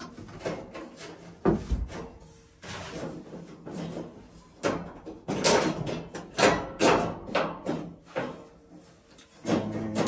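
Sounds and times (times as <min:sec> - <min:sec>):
metal cage knocking and rattling: 0:04.6 - 0:08.4.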